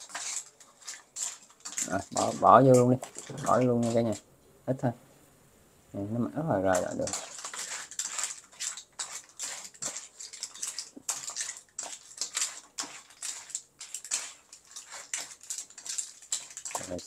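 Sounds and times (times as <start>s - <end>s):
shells clattering in pan: 0.0s - 4.2s, 6.7s - 17.0s
high sizzle: 6.6s - 17.0s.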